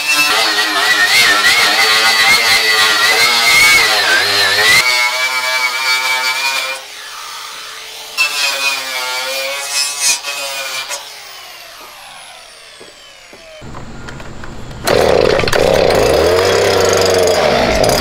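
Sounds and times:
angle grinder whine: 0.0 - 4.8, 10.8 - 18.0.

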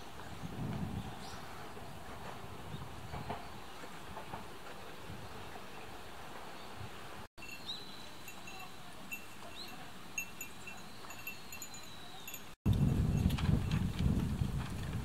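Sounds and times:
train running noise: 1.6 - 6.6.

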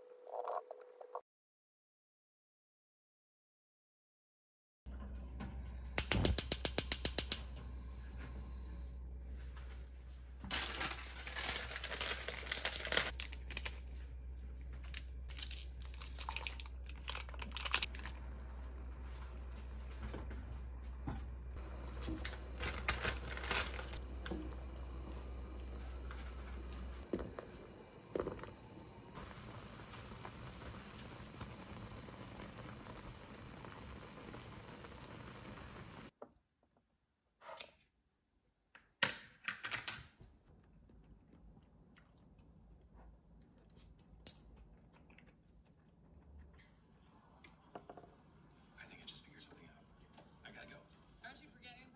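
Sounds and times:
steady low hum: 7.2 - 34.4
crinkling and rustling: 9.6 - 20.7, 21.6 - 27.6.

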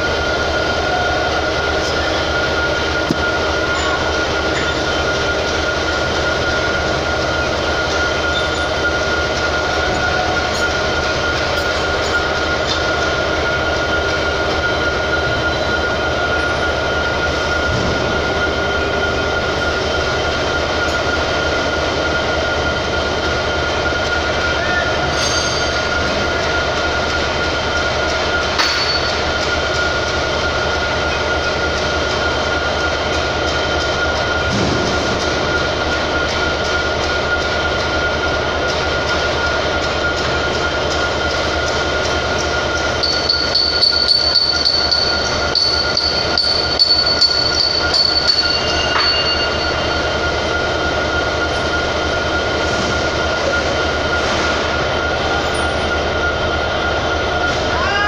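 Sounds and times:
industrial machinery drone: 0.0 - 58.0
high-pitched whine: 33.3 - 58.0.

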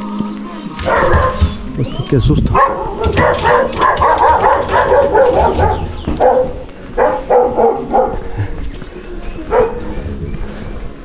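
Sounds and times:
dog barking: 0.8 - 1.6, 2.5 - 8.3, 9.5 - 9.9.

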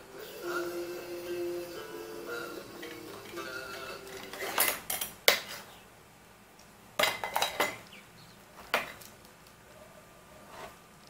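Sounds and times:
toys clattering against plastic: 4.0 - 5.6, 7.0 - 7.9.

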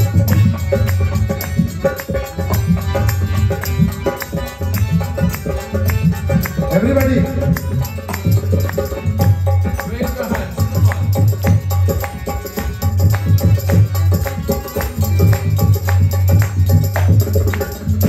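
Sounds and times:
hand drum beat: 0.0 - 18.0
instrumental melody: 0.0 - 18.0
people clapping along: 0.0 - 18.0.

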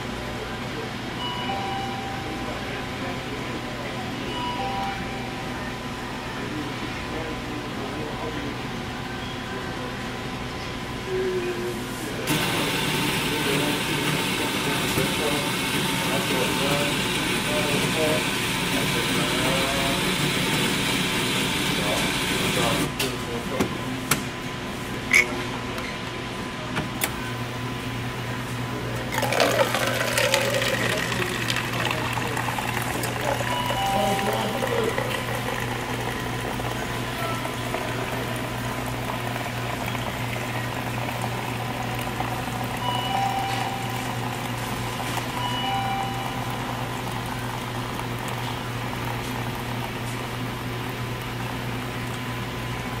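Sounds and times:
coffee machine humming: 0.0 - 53.0
coffee pouring into paper cup: 12.3 - 22.9, 29.0 - 52.3
coffee splashing into paper cup: 29.2 - 33.5.

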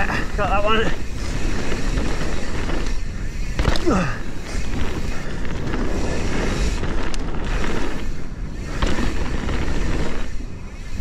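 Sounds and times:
bike tyres rumbling on trail: 0.0 - 11.0
wind buffeting microphone: 0.0 - 11.0.

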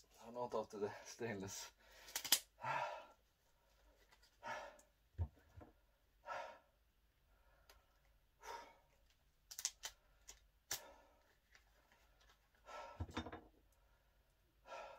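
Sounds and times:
man breathing out heavily: 1.8 - 3.2, 4.4 - 4.9, 6.2 - 7.7, 12.6 - 13.2, 14.6 - 14.9.

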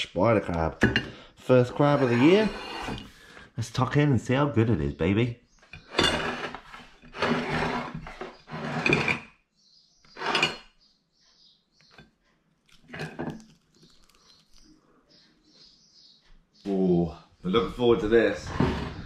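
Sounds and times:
scraping and knocking on a plate: 0.8 - 1.2, 1.8 - 3.2, 5.8 - 9.3, 10.1 - 10.7, 18.4 - 19.0.

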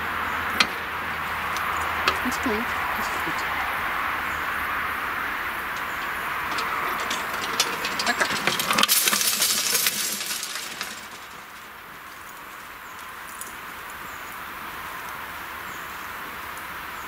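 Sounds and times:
barrier grille clinking and rattling: 0.2 - 14.0.

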